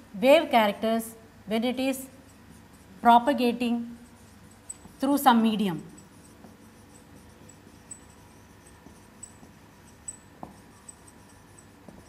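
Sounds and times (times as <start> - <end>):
marker squeaking on whiteboard: 4.0 - 5.1, 5.8 - 12.0.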